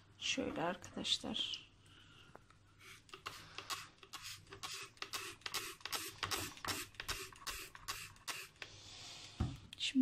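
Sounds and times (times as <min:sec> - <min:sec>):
spray bottle squirts: 0:03.1 - 0:08.6.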